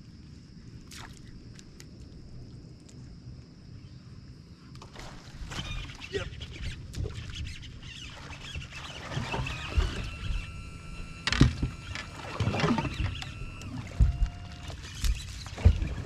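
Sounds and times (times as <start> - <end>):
thin high whine: 7.9 - 16.0.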